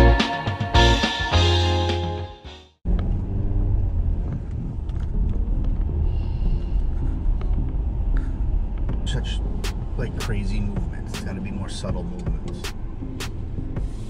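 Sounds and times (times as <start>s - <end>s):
guitar music: 0.0s - 2.7s
car interior rumble: 2.8s - 14.0s.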